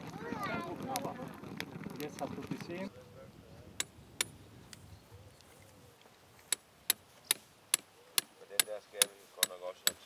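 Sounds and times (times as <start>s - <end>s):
faint voices: 0.0s - 3.8s.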